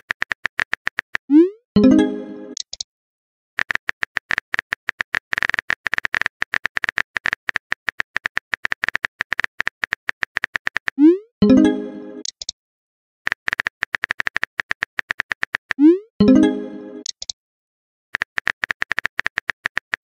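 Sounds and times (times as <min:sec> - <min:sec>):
message sent chime: 0:01.8 - 0:02.6, 0:11.4 - 0:12.2, 0:16.2 - 0:17.1.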